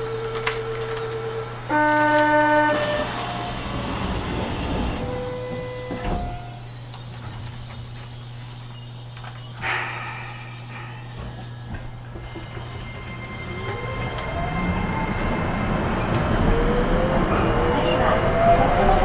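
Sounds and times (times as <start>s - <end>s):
doors sliding and clunking shut: 2.0s - 7.6s.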